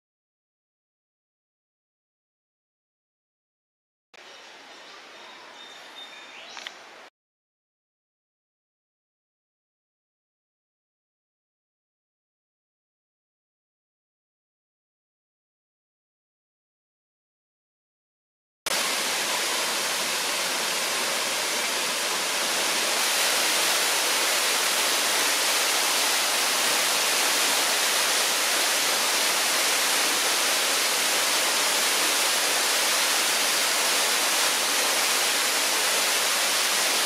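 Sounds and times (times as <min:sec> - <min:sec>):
waterfall rushing into a pool: 0:18.7 - 0:37.0.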